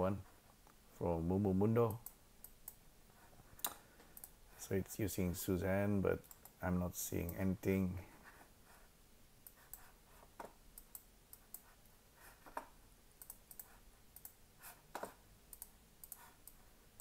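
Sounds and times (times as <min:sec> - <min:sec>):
computer mouse and keyboard clicks: 0:12.5 - 0:16.6.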